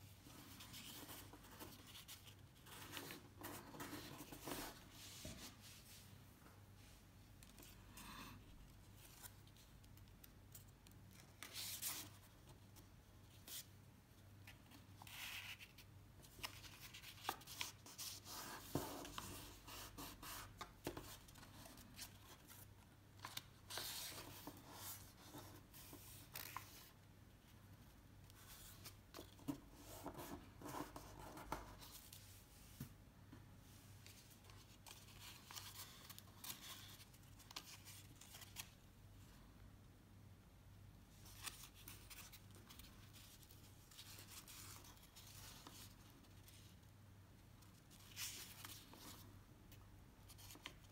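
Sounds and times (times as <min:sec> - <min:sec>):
paper rustling and crinkling: 0:14.4 - 0:27.0, 0:34.0 - 0:38.8, 0:41.2 - 0:46.7.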